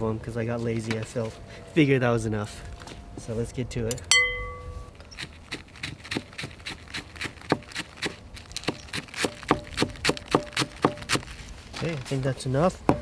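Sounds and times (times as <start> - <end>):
sharp ringing clink: 4.0 - 4.9.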